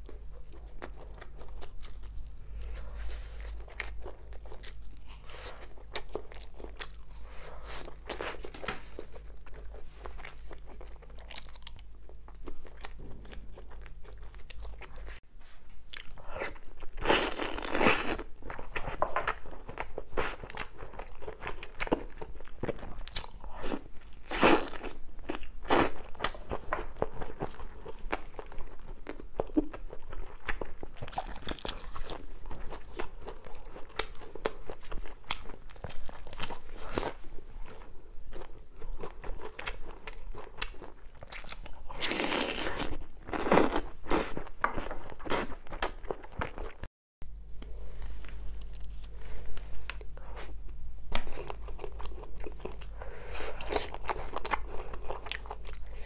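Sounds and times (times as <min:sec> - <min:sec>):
crunchy bites and chewing: 0:15.9 - 0:46.8.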